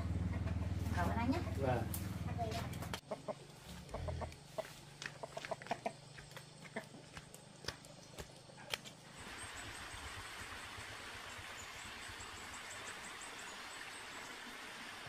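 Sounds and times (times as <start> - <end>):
chickens clucking: 0.1 - 7.3.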